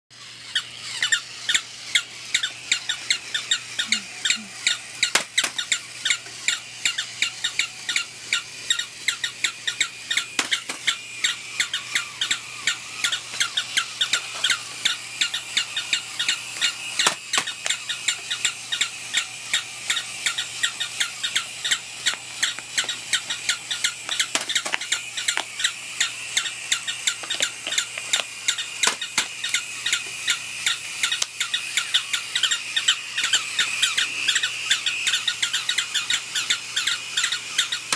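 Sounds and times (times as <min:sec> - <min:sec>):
electronic toy dogs barking: 0:00.2 - 0:37.9
sharp clicks: 0:19.9 - 0:29.6, 0:31.0 - 0:31.7.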